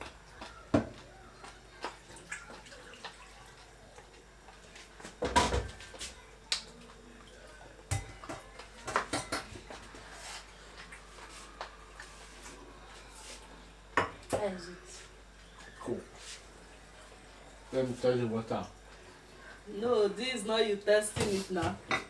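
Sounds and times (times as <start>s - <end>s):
utensils and pots clinking: 7.9s - 9.7s.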